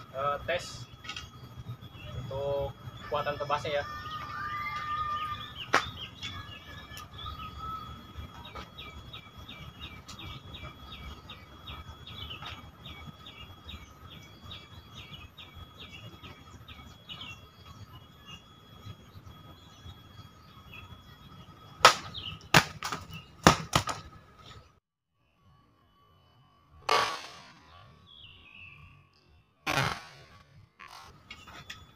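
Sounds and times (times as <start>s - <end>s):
steady high tone: 0.0s - 23.4s
bird chirping: 0.0s - 23.5s, 27.7s - 29.3s.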